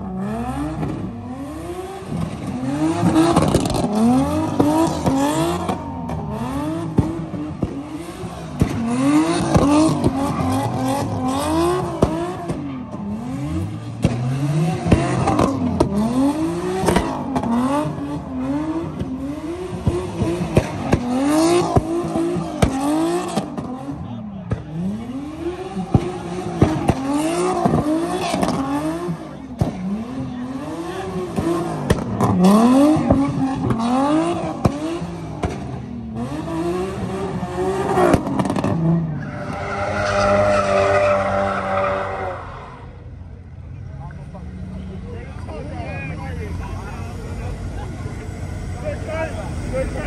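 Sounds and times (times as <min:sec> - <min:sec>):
car engine revving: 0:00.0 - 0:50.0
tyres squealing on asphalt: 0:08.2 - 0:30.0, 0:37.4 - 0:43.2.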